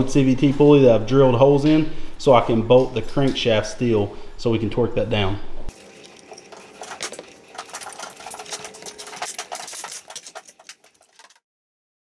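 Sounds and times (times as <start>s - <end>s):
metal parts and tools clinking: 5.7s - 11.4s.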